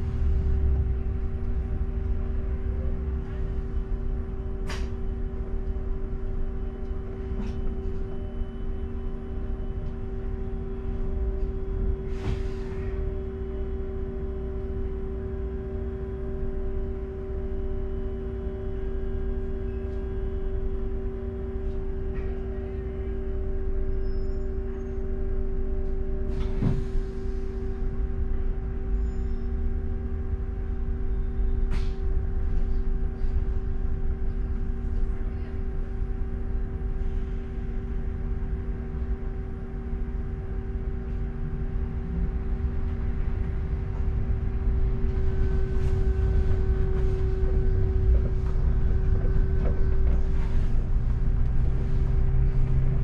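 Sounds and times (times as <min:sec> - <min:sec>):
bus engine and road rumble: 0:00.0 - 0:53.0
droning hum: 0:00.0 - 0:53.0.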